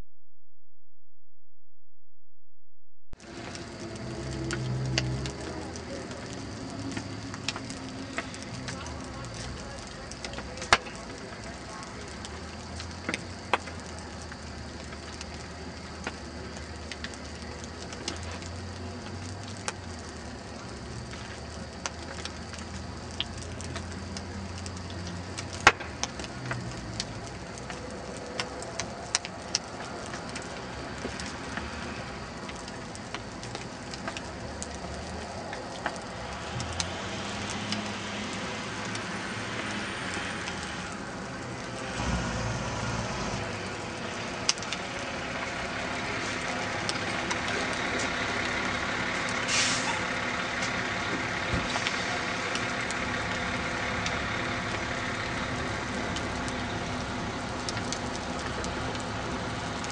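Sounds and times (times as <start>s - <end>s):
vehicle engine: 3.2s - 9.5s, 33.4s - 59.9s
fire crackling and popping: 3.2s - 59.9s.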